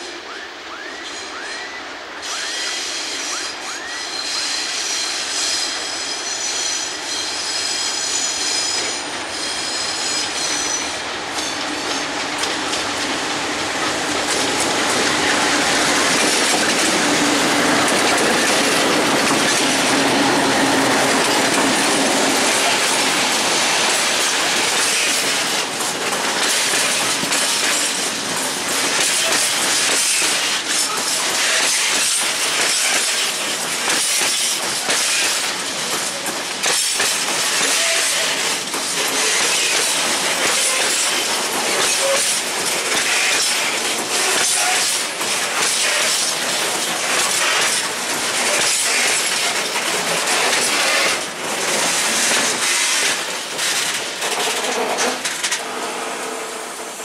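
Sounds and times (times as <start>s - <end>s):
diesel locomotive engine: 0.0s - 57.0s
high-pitched wheel squeal: 0.7s - 10.9s
wheels clattering on rail joints: 3.2s - 57.0s.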